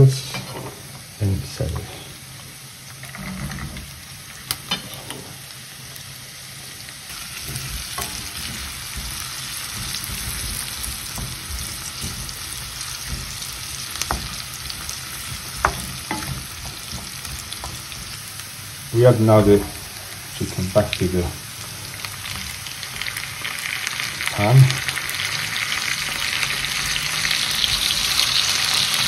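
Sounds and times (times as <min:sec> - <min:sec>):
vegetables sizzling in oil: 0:00.0 - 0:29.0
wooden spoon knocking on pan: 0:07.4 - 0:18.3.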